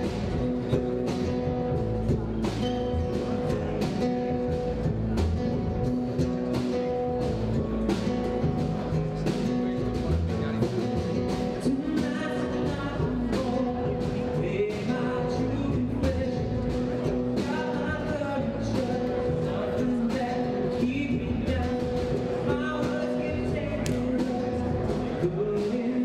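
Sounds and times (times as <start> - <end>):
rock band playing: 0.0 - 26.0
person singing: 11.6 - 26.0.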